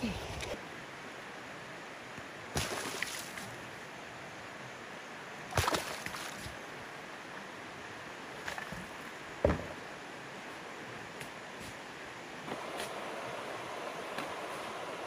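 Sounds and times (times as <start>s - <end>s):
river water running: 0.0s - 15.0s
water splashes: 2.5s - 3.6s, 5.5s - 6.6s.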